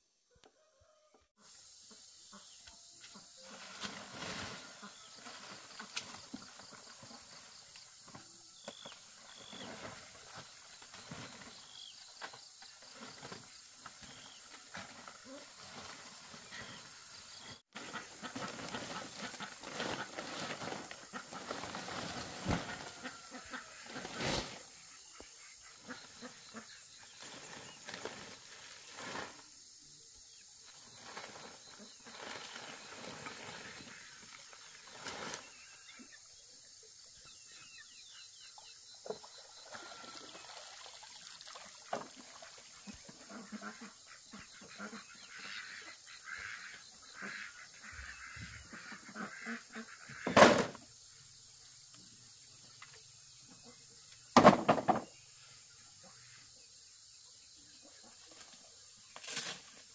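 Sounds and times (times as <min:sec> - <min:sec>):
dry thatch rustling and crackling: 0:03.4 - 0:08.2, 0:08.9 - 0:24.7, 0:25.7 - 0:29.6, 0:30.7 - 0:35.7, 0:58.2 - 0:59.9.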